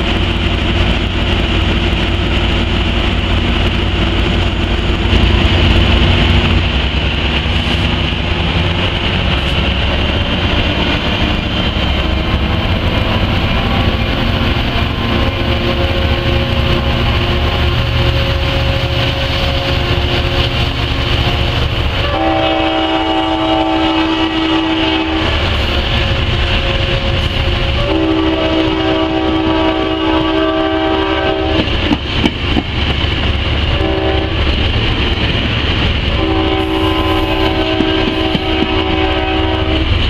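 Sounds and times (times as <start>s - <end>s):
diesel locomotive engine: 0.0s - 40.0s
train coaches rumbling on rails: 0.0s - 40.0s
locomotive horn: 21.2s - 31.8s, 33.7s - 34.5s, 36.0s - 40.0s.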